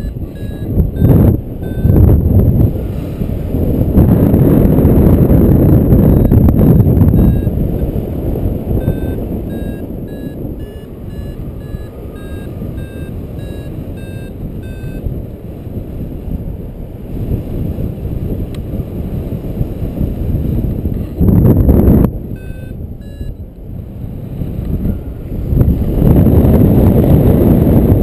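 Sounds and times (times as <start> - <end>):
variometer beeping: 0.0 - 2.4, 5.0 - 7.7, 8.7 - 15.1, 20.9 - 21.6, 22.3 - 23.5
wind gust hitting microphone: 0.0 - 28.0
wind rush on microphone: 0.0 - 28.0.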